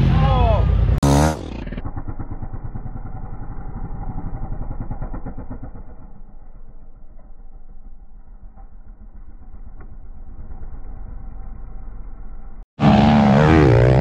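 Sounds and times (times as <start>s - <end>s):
dirt bike engine revving: 0.7s - 8.2s, 12.8s - 14.0s.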